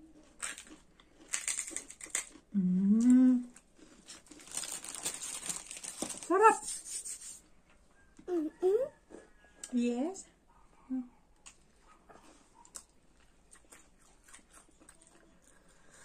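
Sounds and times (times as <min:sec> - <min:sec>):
plastic snack packet crinkling: 0:00.3 - 0:02.4, 0:03.8 - 0:06.5.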